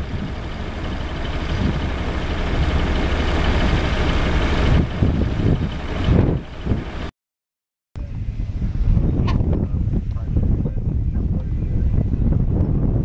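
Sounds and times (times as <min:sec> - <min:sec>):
combine harvester running: 0:00.0 - 0:07.1
wind gusts on microphone: 0:00.0 - 0:07.1, 0:08.0 - 0:13.0.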